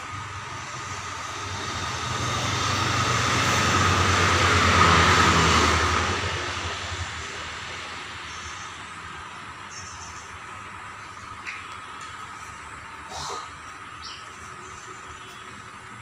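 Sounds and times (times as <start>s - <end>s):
vehicle passing by: 0.0s - 9.4s.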